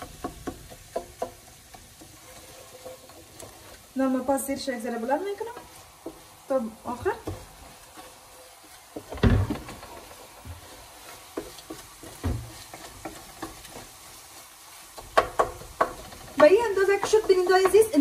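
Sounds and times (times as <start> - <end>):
spoon knocking against pot: 0.0 - 2.1, 15.0 - 18.0
faint sizzle: 0.0 - 18.0
wooden spoon stirring and scraping pot: 0.0 - 18.0.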